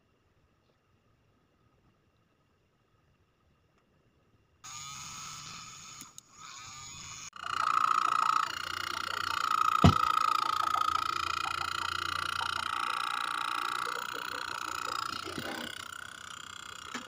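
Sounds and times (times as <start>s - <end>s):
small motor high whine: 4.6s - 17.0s.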